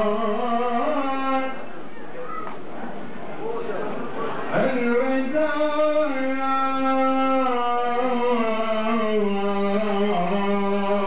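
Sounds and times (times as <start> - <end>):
man chanting into a microphone: 0.0 - 1.7, 4.5 - 11.0.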